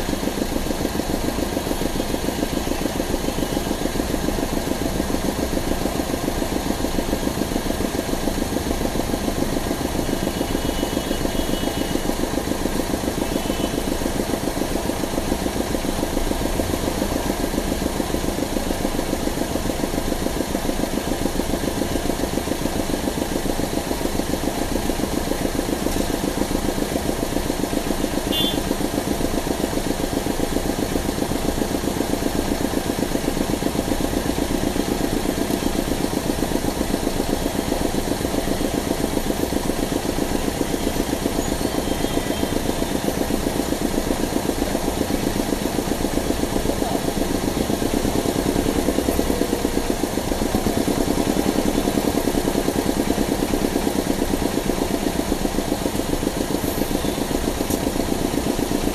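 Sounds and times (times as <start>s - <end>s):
car engine idling: 0.0s - 58.9s.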